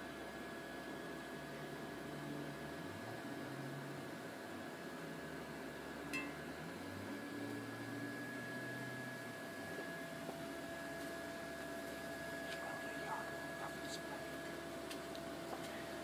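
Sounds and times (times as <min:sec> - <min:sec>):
blower fan hissing: 0:00.0 - 0:16.0.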